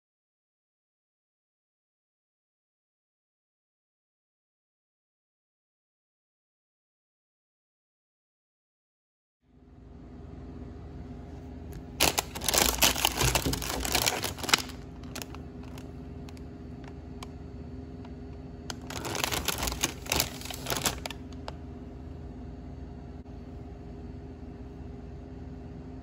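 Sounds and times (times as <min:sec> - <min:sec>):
plastic wrapper crinkling: 0:11.8 - 0:16.4, 0:18.7 - 0:21.6.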